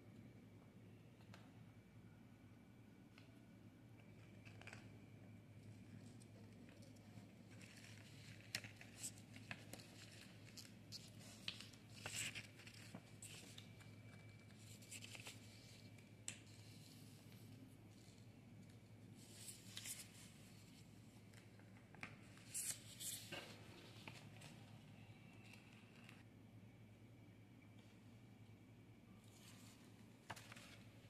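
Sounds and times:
paper rustling and crackling: 0:06.0 - 0:17.4, 0:19.2 - 0:24.8, 0:29.2 - 0:31.0.

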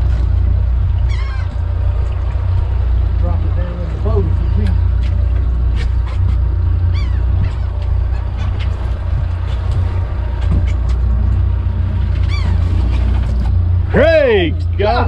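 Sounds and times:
boat engine rumbling: 0:00.0 - 0:15.0
bird calls: 0:01.0 - 0:01.8, 0:04.2 - 0:09.7, 0:12.2 - 0:13.1.

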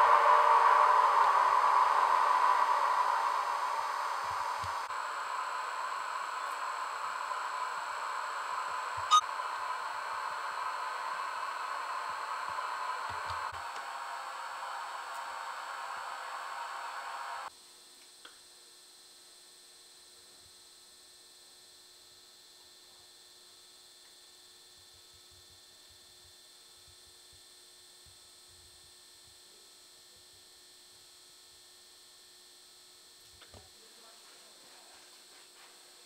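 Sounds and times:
rushing noise: 0:00.0 - 0:17.5.

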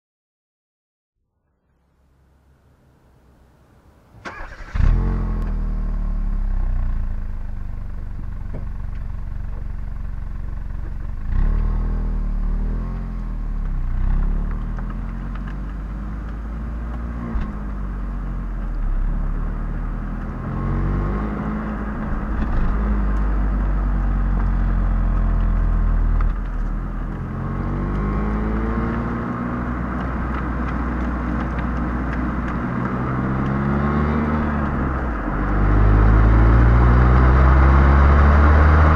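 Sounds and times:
road noise hiss: 0:01.6 - 0:27.4
car exhaust revving: 0:04.3 - 0:38.9.

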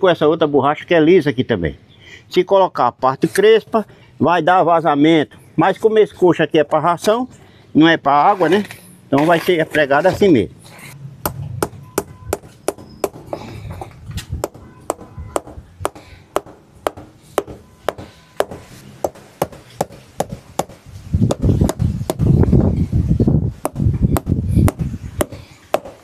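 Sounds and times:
hammer driving nails into rubber: 0:11.2 - 0:22.3, 0:23.6 - 0:26.0.

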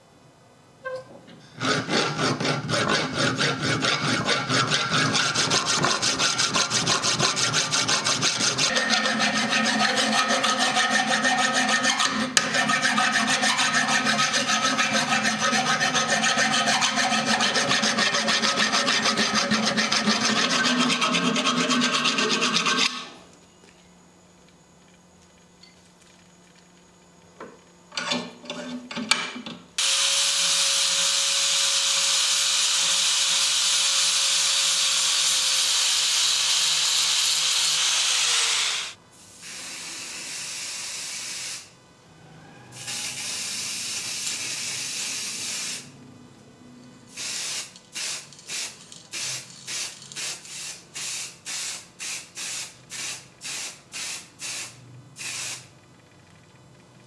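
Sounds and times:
spray hissing onto metal: 0:47.1 - 0:55.6.

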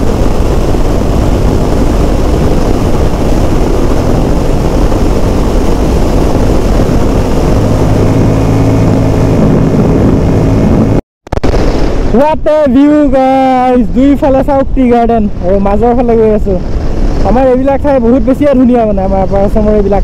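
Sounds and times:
motorcycle engine running: 0:00.0 - 0:11.0
wind noise rushing: 0:00.0 - 0:20.0.

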